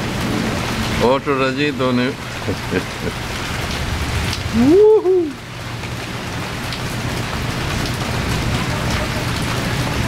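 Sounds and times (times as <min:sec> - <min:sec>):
steady rain: 0:00.0 - 0:10.0
person humming: 0:04.6 - 0:05.4.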